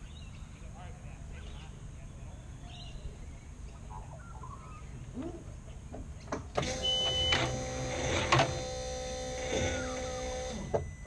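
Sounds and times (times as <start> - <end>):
electric motor whine: 6.6 - 10.8.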